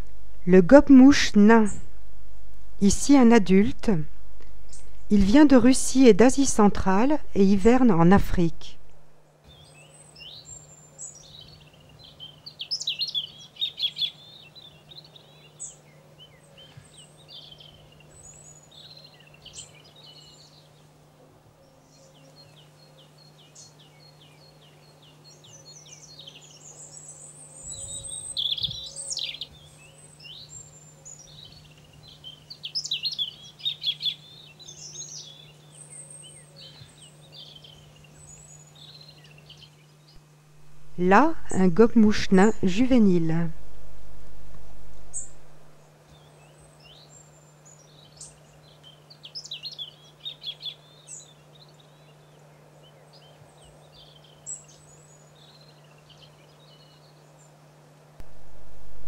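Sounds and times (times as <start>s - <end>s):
low steady hum: 0.0s - 12.5s, 33.3s - 49.2s, 49.9s - 59.0s
songbirds chirping and trilling: 9.3s - 43.6s, 44.7s - 59.0s.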